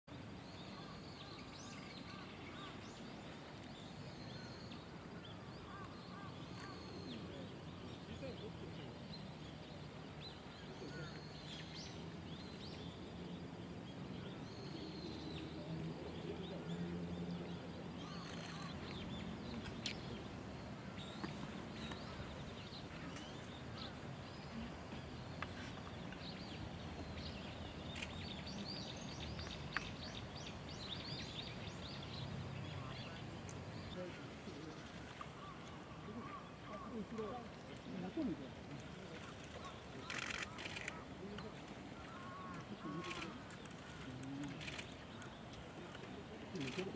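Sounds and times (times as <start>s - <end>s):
low background murmur: 14.0s - 46.9s
small birds chirping: 14.2s - 46.9s
faint sharp clicks: 18.1s - 20.2s, 27.2s - 30.5s, 38.8s - 46.9s.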